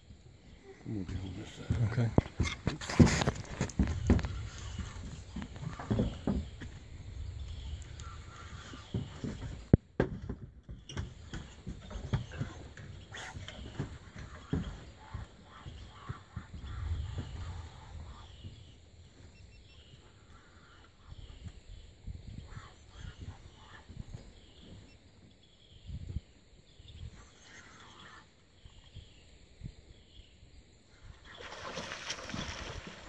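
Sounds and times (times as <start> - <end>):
low knocks and rumbles: 1.7 - 18.8.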